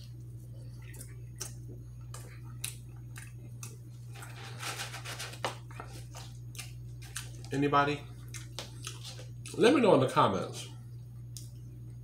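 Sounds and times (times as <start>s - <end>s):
chewing with wet mouth clicks: 0.0s - 3.8s, 5.9s - 7.5s, 8.2s - 9.6s, 11.3s - 11.6s
low electrical hum: 0.0s - 12.0s.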